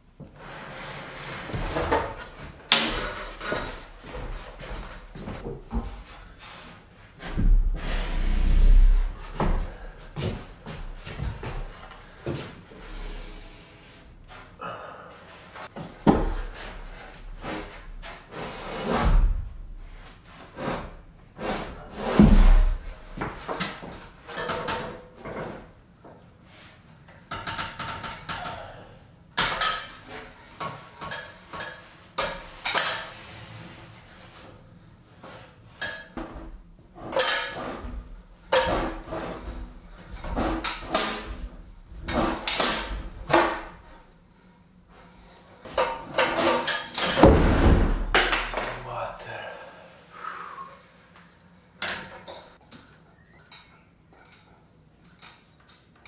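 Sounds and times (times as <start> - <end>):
knocks and clanks on ladder: 45.7 - 48.8.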